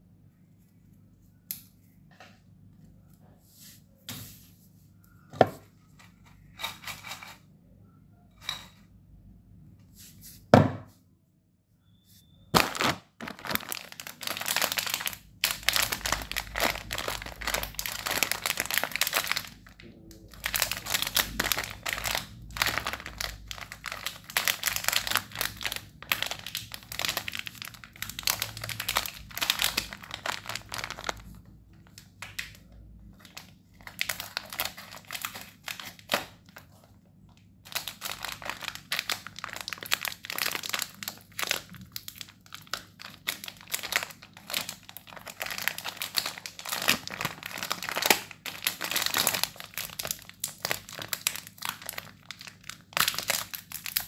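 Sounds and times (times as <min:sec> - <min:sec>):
plastic wrapper crinkling: 0:12.5 - 0:54.0.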